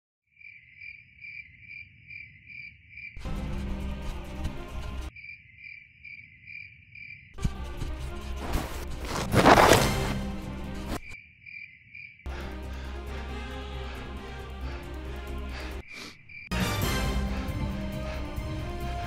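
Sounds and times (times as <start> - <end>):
crickets chirping: 0.3 - 3.2, 5.1 - 7.4, 10.9 - 13.0, 14.6 - 16.5.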